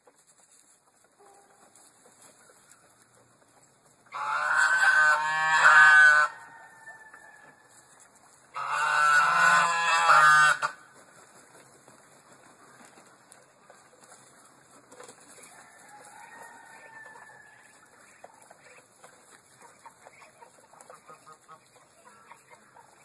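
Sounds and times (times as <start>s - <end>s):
geese honking: 4.0s - 6.5s, 8.5s - 10.9s, 16.4s - 23.0s.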